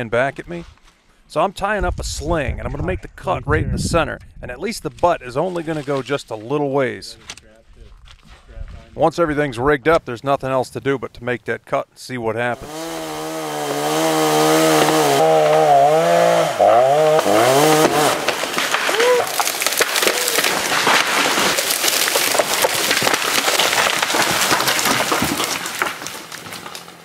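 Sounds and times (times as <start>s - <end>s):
chainsaw cutting wood: 12.6s - 27.0s
tree crashing through branches: 12.7s - 27.0s
wood cracking and snapping: 12.7s - 27.0s.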